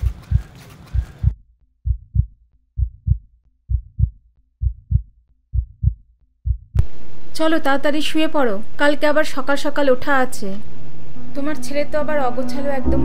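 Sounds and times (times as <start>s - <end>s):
heartbeat thumps: 0.0s - 6.9s
background hiss: 6.8s - 12.4s.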